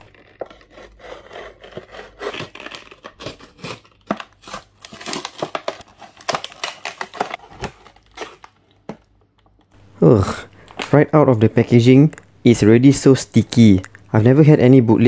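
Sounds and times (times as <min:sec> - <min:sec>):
plastic packaging crinkling: 0:00.0 - 0:09.1.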